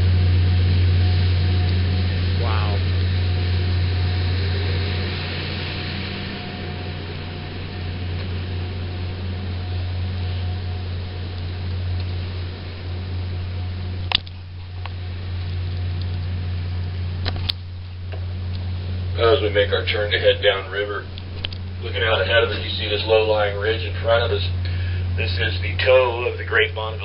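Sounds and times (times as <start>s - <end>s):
water hiss: 0.0s - 15.5s
boat engine drone: 0.0s - 27.0s
wind hiss: 0.0s - 27.0s
sharp clicks: 14.1s - 15.0s.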